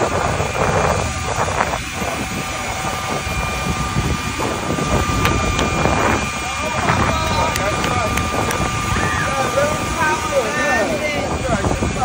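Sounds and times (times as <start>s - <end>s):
high whine: 0.0s - 12.0s
jet engines roaring: 0.0s - 12.0s.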